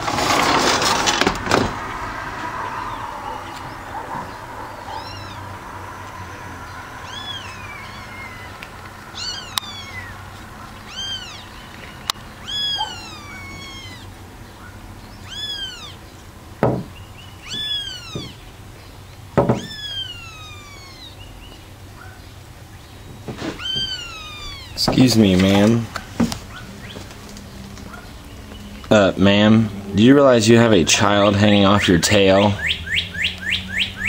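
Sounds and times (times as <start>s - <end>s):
kitten mewing: 4.7s - 10.2s, 10.8s - 11.5s, 12.4s - 14.2s, 15.2s - 16.0s, 17.4s - 18.4s, 19.5s - 21.2s, 23.5s - 24.9s
dull thumps: 16.6s - 18.4s, 19.4s - 19.8s.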